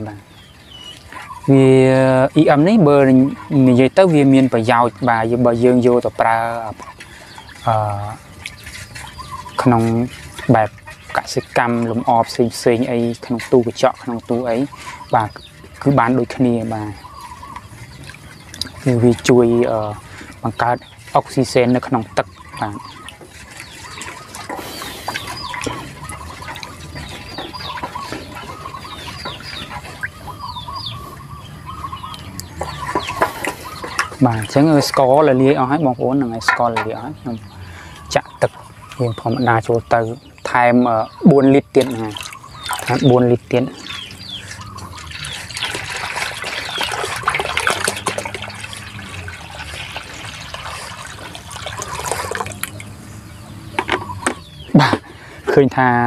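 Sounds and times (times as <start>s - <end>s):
water pouring and splashing: 0.0s - 31.0s, 32.0s - 55.7s
chickens clucking: 0.0s - 56.0s
stick stirring in metal bowl: 5.4s - 30.2s, 41.7s - 52.8s.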